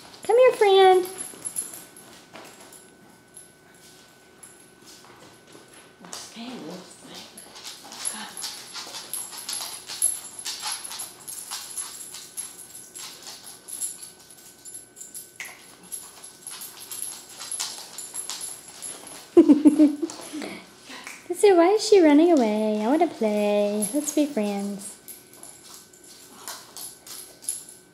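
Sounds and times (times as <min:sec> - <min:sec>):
dog claws clicking on wooden floor: 0:07.3 - 0:14.6, 0:15.4 - 0:19.2.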